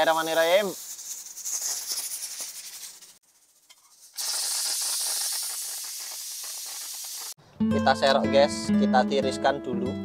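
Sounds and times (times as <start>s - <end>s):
pressure cooker steam hissing: 3.8s - 7.4s.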